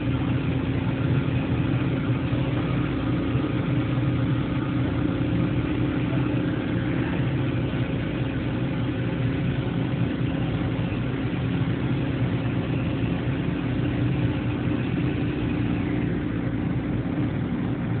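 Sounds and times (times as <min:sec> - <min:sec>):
machining center humming: 0:00.0 - 0:18.0.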